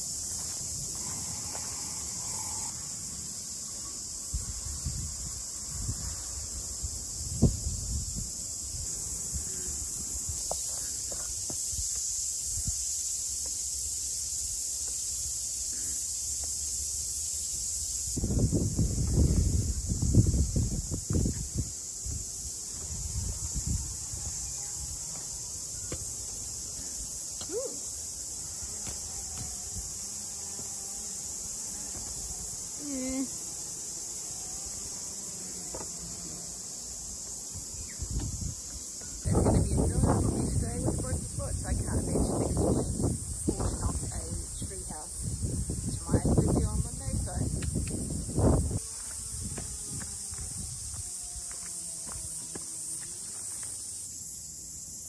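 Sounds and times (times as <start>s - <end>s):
insects chirring: 0.0s - 55.0s
wind buffeting microphone: 4.3s - 10.5s, 18.0s - 24.9s, 37.6s - 51.1s.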